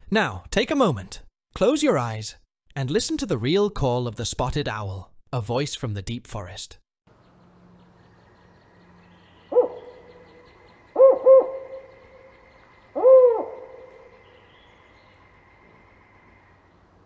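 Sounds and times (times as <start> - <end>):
owl hooting: 8.3 - 16.7.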